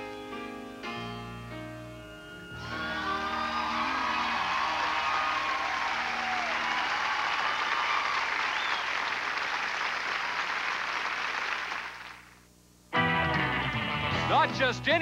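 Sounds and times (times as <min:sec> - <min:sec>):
audience applauding: 0:02.6 - 0:12.4.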